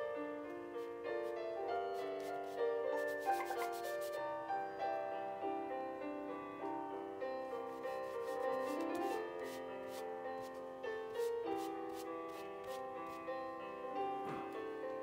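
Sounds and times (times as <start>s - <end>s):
soft piano music: 0.0s - 15.0s
ink brush scratching on paper: 0.8s - 4.3s, 7.4s - 13.3s.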